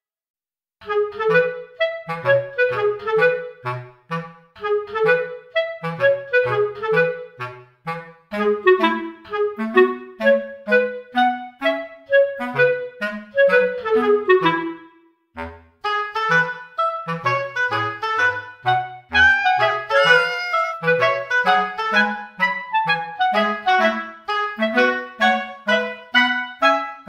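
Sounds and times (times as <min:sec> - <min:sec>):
clarinet melody: 0:00.8 - 0:27.0
bass line: 0:19.2 - 0:20.9.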